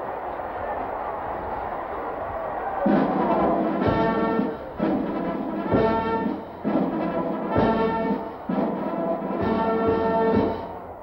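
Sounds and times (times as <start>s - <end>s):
brass chords: 2.8s - 11.0s.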